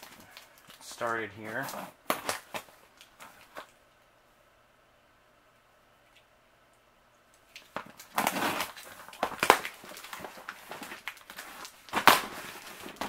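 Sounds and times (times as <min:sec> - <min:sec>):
plastic envelopes rustling: 0:00.0 - 0:03.8, 0:07.5 - 0:13.0.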